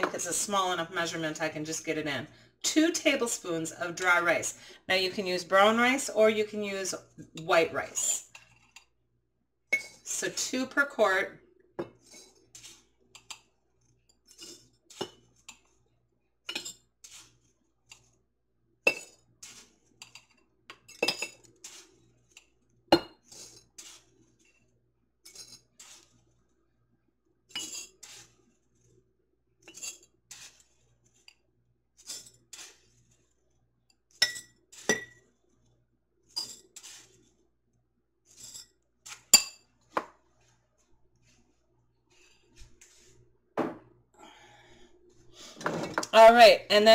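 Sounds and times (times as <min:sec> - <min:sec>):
spoon clinking against glass jars: 0:34.2 - 0:35.2.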